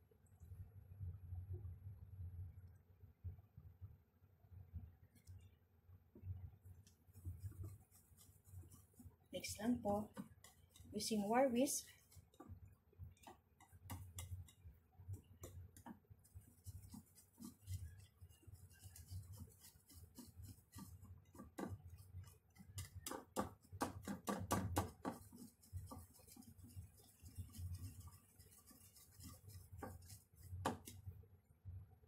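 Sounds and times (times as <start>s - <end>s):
whisk beating batter in bowl: 7.0s - 31.2s.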